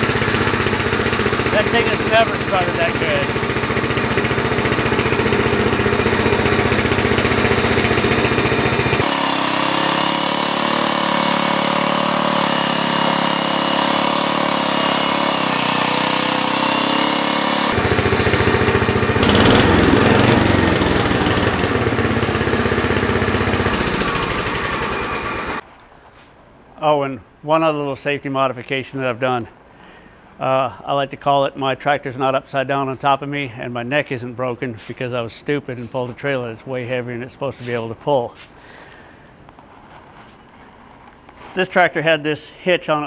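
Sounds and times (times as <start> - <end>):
lawn tractor engine running: 0.0 - 25.6.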